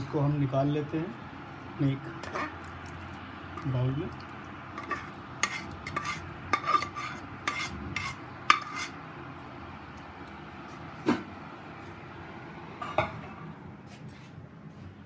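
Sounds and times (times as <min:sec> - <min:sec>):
spoon scraping a metal bowl: 0:02.2 - 0:02.6, 0:04.8 - 0:09.0.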